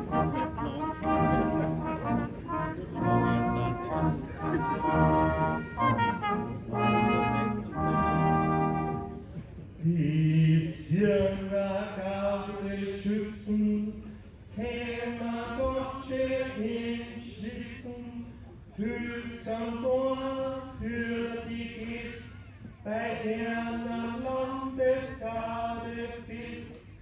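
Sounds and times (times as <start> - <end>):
brass band playing chords: 0.0 - 9.4.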